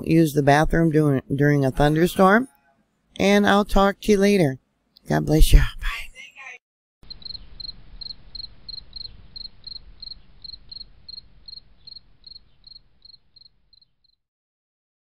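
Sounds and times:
cricket chirping: 7.0 - 14.2
faint low rumble: 7.1 - 13.4.

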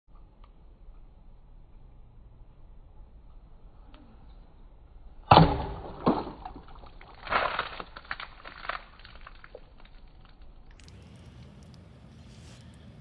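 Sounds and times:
plastic bottle struck: 5.3 - 8.8
water splashing and spilling: 5.9 - 11.8.

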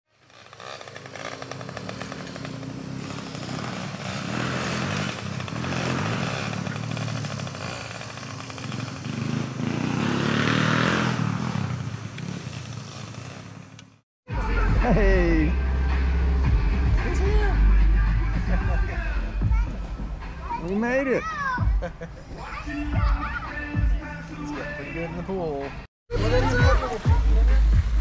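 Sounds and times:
dirt bike engine revving high: 0.1 - 13.7.

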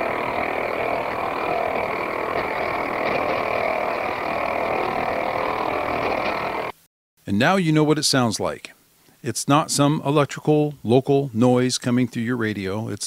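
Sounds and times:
electrical pulsing radio noise: 0.0 - 6.8.

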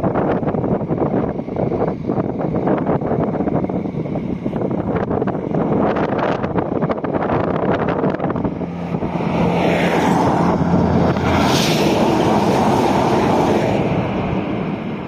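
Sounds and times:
wind buffeting microphone: 0.0 - 15.0
truck passing at speed: 4.0 - 15.0.

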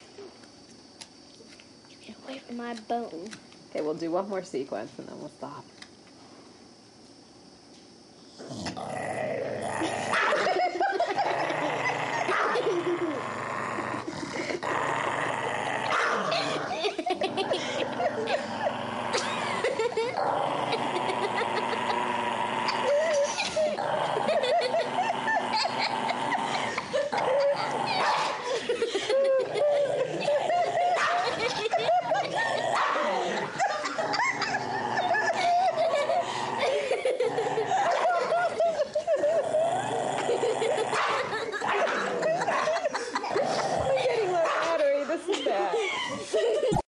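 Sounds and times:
dog growling: 8.4 - 45.1.

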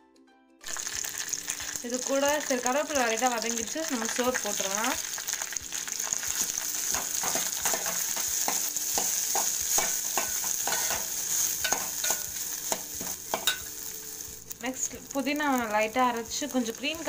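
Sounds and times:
food sizzling in a pan: 0.6 - 17.0
spoon scraping and knocking pan: 6.1 - 13.9.

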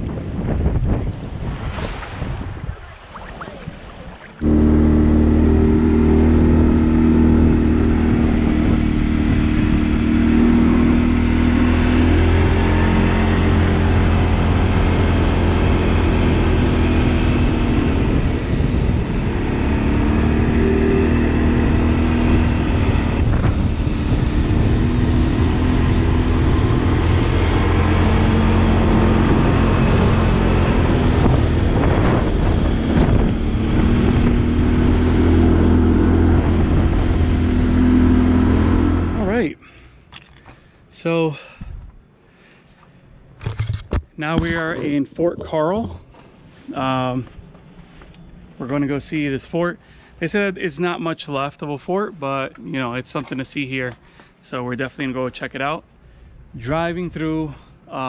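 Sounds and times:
atv engine running: 4.4 - 39.5.

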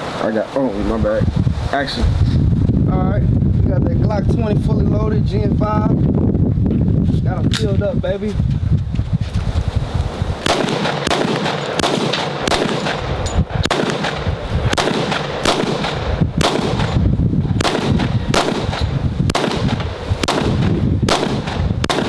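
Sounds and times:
pistol firing single shots: 10.4 - 22.0.

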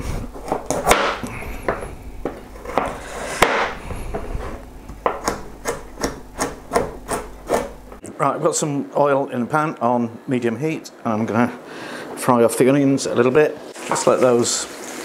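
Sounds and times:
knife chopping on plastic board: 0.4 - 4.3, 4.9 - 8.0
knife slicing scrapes: 5.2 - 7.8.

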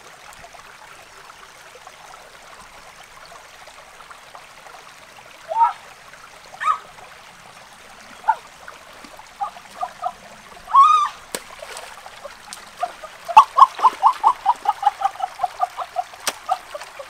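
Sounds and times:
stream trickling and splashing: 0.0 - 17.0
animal calling: 6.6 - 6.9, 9.4 - 11.3, 12.2 - 17.0.

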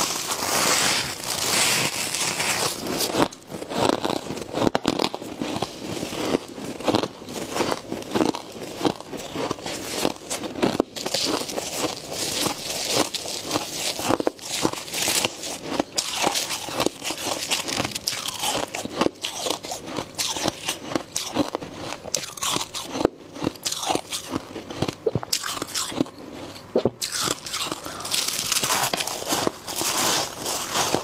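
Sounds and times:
gloved hands scooping frost: 0.0 - 3.7, 27.9 - 31.0
crunchy bites and chewing: 0.0 - 31.0.

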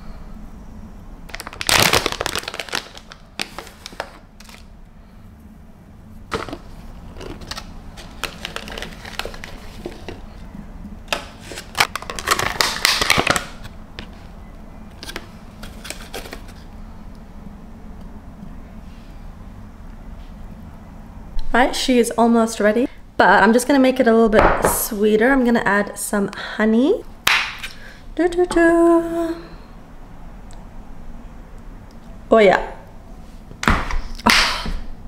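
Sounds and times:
plastic packaging crackling: 1.3 - 4.7, 6.3 - 10.4, 11.0 - 14.3.

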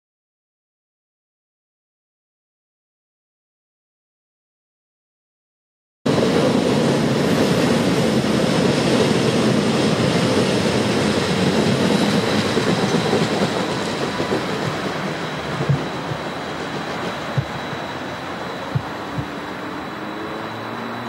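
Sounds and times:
high train whine: 6.1 - 21.0
train wheels rumbling on rail: 6.1 - 21.0.

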